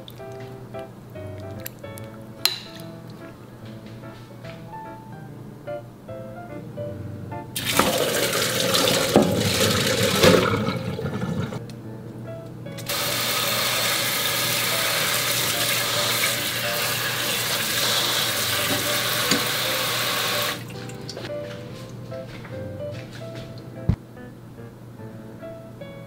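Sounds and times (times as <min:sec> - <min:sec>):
tap water running: 0:07.6 - 0:11.6, 0:12.8 - 0:21.9
water splashing into metal colander: 0:07.6 - 0:11.6, 0:12.8 - 0:21.2.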